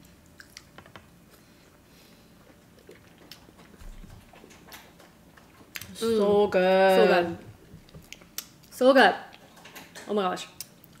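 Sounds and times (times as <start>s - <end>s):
wet mouth clicks and smacks: 7.9s - 8.7s, 10.6s - 11.0s.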